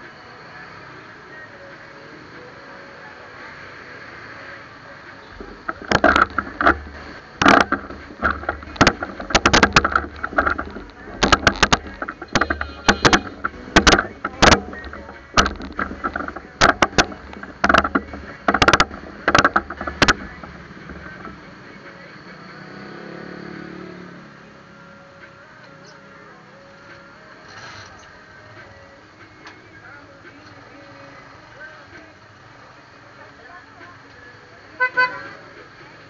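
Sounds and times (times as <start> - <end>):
street background noise: 0.0 - 36.0
camera mount knocking and rattling: 5.4 - 21.4.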